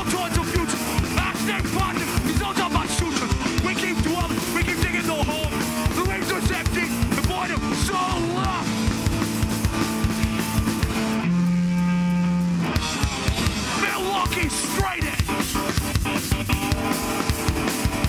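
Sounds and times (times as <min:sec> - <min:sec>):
fast drum hits: 0:00.0 - 0:11.2, 0:12.7 - 0:18.0
distorted electric guitars: 0:00.0 - 0:18.0
vocalist shouting into microphone: 0:13.8 - 0:15.2.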